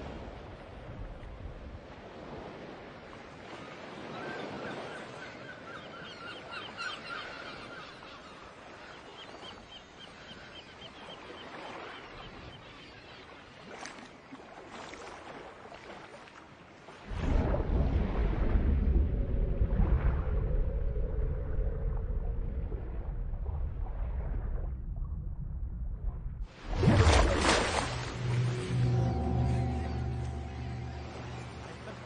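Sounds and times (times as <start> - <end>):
ocean waves: 0.0 - 21.0, 26.5 - 32.0.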